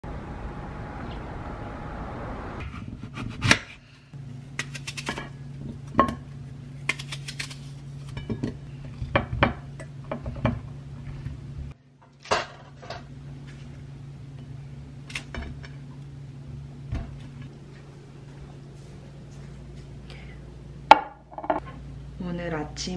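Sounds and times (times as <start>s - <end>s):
low hum: 0.0s - 12.0s, 12.9s - 22.9s
plate and fruit clinking: 20.9s - 21.6s.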